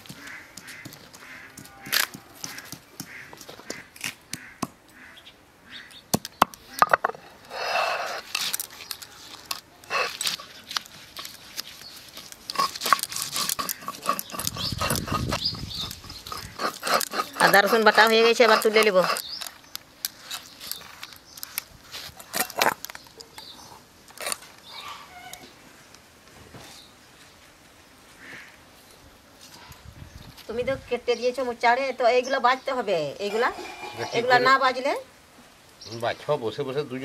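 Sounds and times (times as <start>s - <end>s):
stone roller crushing on stone slab: 12.1s - 19.4s, 22.1s - 22.9s.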